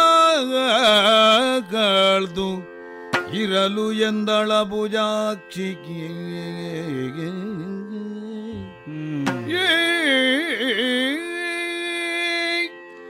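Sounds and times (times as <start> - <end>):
person singing held vowel: 8.5 - 10.8.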